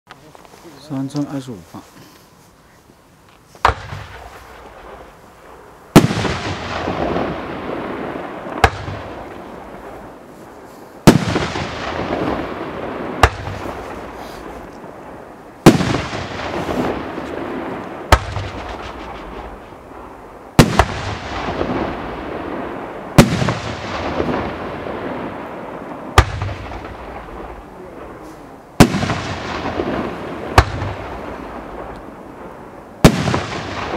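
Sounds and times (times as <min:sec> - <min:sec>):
firework shots firing: 0:03.6 - 0:10.2, 0:11.0 - 0:15.0, 0:15.6 - 0:33.9.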